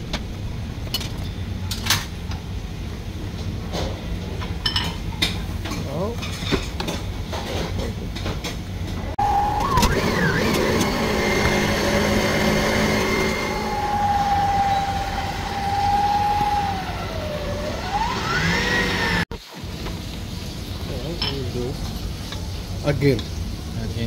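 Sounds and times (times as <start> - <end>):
stand mixer motor humming: 9.2 - 19.2
siren-like wail: 9.2 - 19.3.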